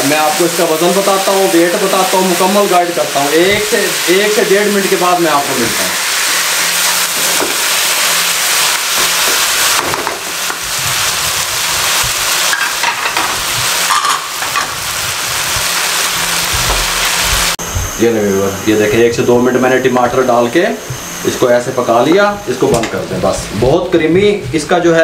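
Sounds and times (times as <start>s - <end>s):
food sizzling in a wok: 0.0s - 17.6s.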